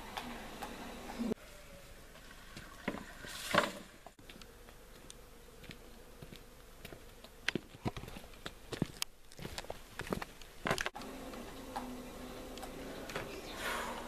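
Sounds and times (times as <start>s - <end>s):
footsteps on paved path: 4.2s - 11.9s.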